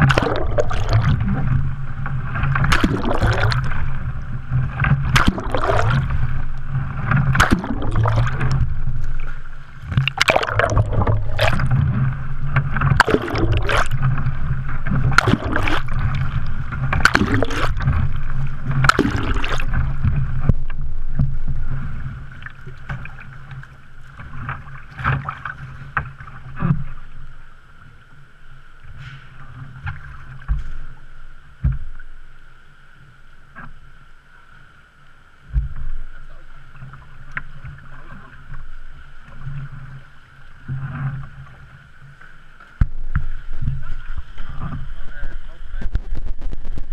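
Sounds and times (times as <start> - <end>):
hands slapping water: 0.0 - 1.2, 2.6 - 3.8, 5.0 - 6.2, 7.3 - 8.6, 9.9 - 11.8, 12.8 - 14.1, 15.0 - 18.0, 18.8 - 19.8
water lapping: 0.0 - 46.9
water splashing around kayak: 0.0 - 46.9.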